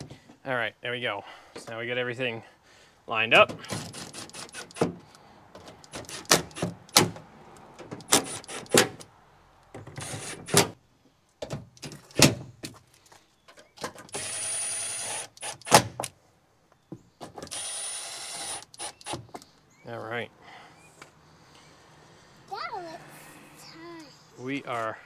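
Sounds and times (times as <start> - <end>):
impact driver running: 3.6 - 5.0, 5.8 - 7.1, 8.0 - 9.0, 9.9 - 10.7, 14.1 - 15.9, 17.4 - 19.3.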